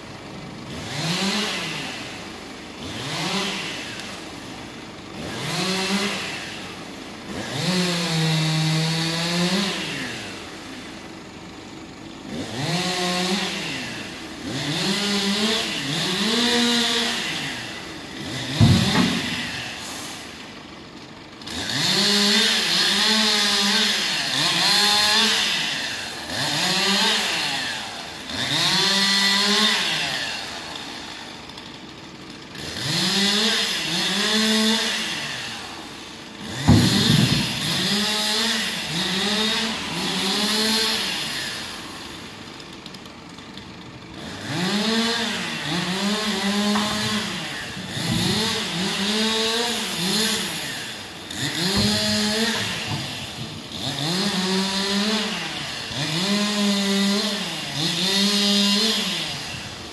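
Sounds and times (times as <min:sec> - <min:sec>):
chainsaw revving: 0:00.0 - 0:59.9
loud thump: 0:18.6 - 0:19.6, 0:36.6 - 0:37.9.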